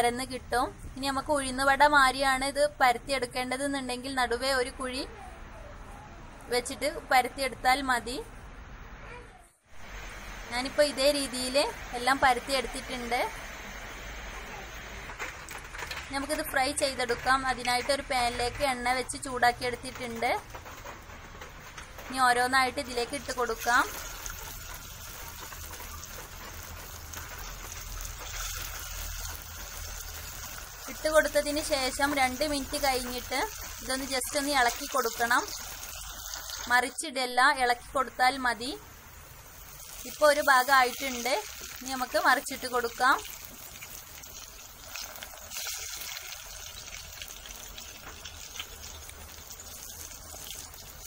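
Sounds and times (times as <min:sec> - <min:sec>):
patties sizzling in hot oil: 0:09.7 - 0:51.0.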